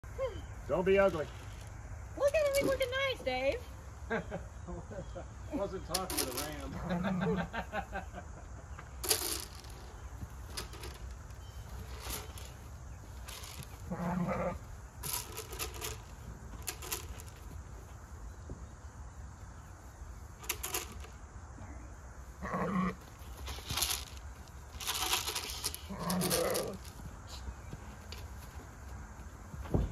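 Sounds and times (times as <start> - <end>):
rustles and scuffs: 8.8 - 21.1, 22.2 - 29.9
ram bleating: 13.9 - 14.6, 22.4 - 23.0.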